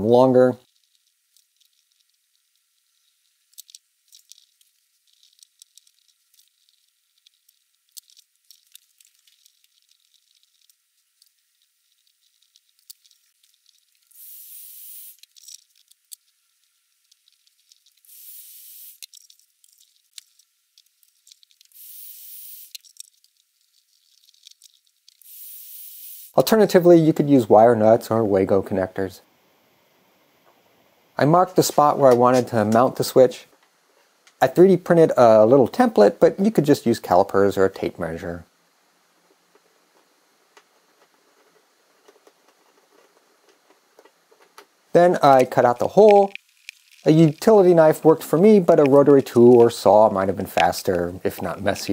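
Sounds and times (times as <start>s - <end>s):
solder flux sizzling: 0.0s - 27.2s, 38.0s - 51.9s
faint clicks and crackles: 0.6s - 26.4s, 31.6s - 34.5s, 38.6s - 51.9s.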